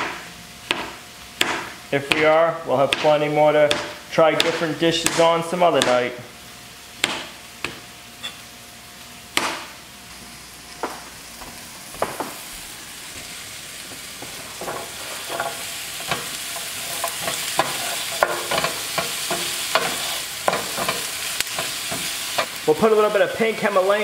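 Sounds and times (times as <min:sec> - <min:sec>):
knife chopping on plastic board: 0:00.0 - 0:02.3, 0:02.9 - 0:06.0, 0:07.0 - 0:07.8
vegetables sizzling in frying pan: 0:06.2 - 0:24.0
wooden spatula scraping pan: 0:14.2 - 0:22.6.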